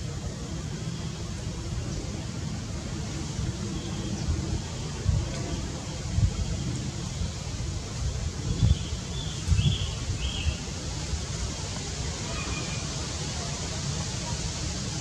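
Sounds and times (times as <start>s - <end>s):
steady outdoor hiss: 0.0s - 15.0s.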